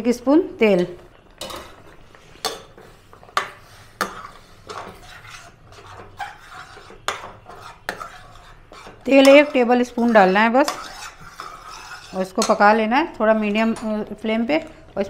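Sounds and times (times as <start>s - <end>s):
spoon stirring semolina: 1.3s - 14.2s
spoon knocking metal pan: 9.1s - 10.9s, 12.3s - 12.8s.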